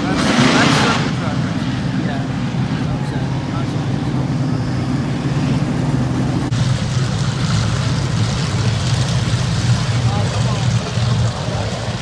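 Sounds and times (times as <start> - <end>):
race car engines rumbling: 0.0 - 12.0.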